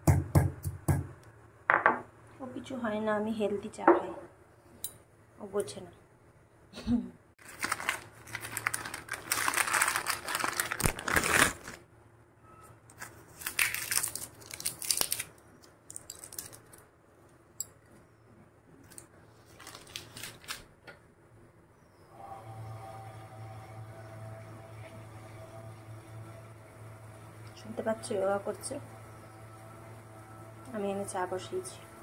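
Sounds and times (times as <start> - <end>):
packaging crinkling: 7.4 - 11.8, 12.9 - 16.9, 18.8 - 20.8.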